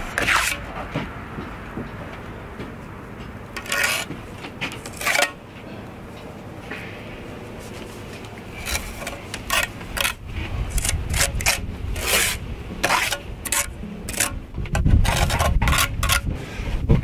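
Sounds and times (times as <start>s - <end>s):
trowel scraping wet mortar: 0.0s - 0.6s, 3.6s - 4.1s, 4.7s - 5.4s, 8.6s - 14.4s, 15.0s - 16.3s.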